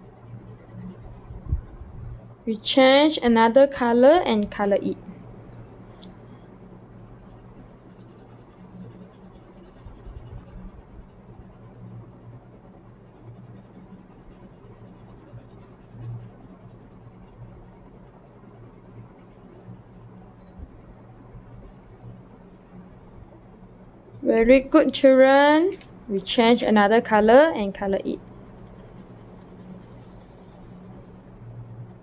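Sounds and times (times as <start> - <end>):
pencil scratching on paper: 0.0 - 1.8, 7.0 - 20.6, 21.4 - 23.5, 28.4 - 32.0
faint low hum: 0.0 - 32.0.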